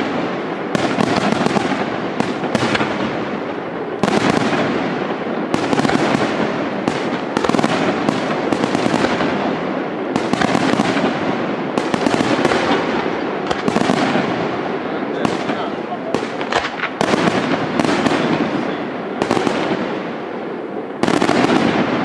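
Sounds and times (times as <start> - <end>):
fireworks bangs: 0.0 - 22.0
fireworks crackling: 0.0 - 22.0.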